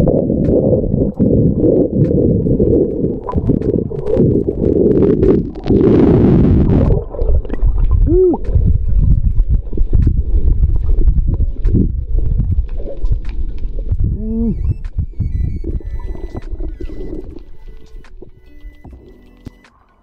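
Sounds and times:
hissy rush of bubbles: 0.0 - 13.8
bubbles gurgling: 0.0 - 19.2
muffled underwater rumbling: 0.0 - 19.6
short rising and falling squeak: 14.2 - 19.7.

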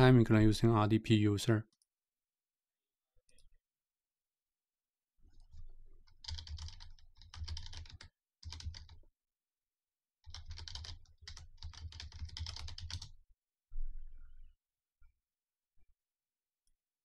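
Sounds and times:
typing on computer keyboard: 5.4 - 9.0, 10.2 - 13.2.

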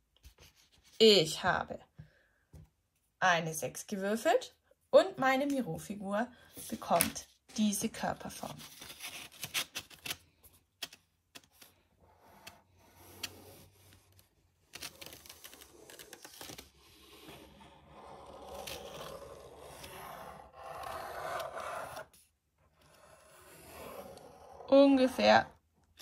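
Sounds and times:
pen scratching on paper: 12.0 - 14.0, 17.0 - 25.5.

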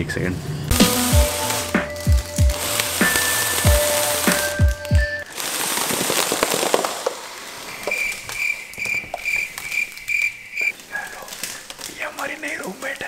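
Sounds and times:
music: 0.7 - 5.2
foil crinkling: 0.7 - 13.0.

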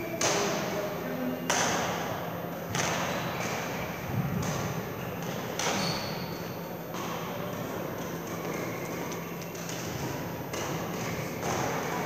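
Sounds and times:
rackets hitting shuttlecock: 0.2 - 0.6, 2.7 - 3.4, 9.5 - 12.0.

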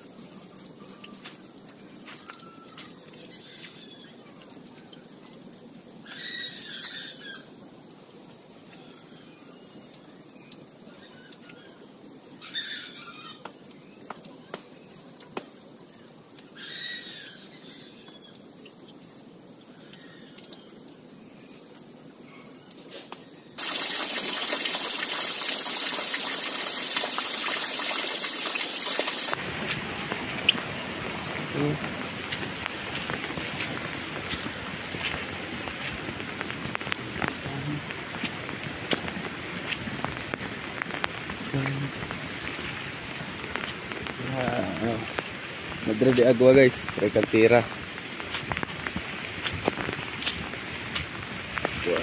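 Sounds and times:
heavy rain: 23.6 - 52.0.

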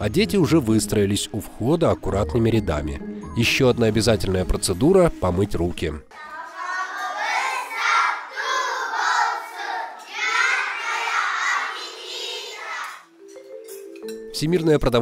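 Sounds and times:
children speaking in unison: 6.1 - 13.1.

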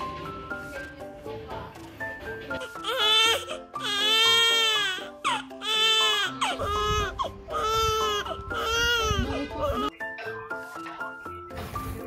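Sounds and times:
soft background music: 0.0 - 12.0
newborn baby crying: 2.5 - 9.9.

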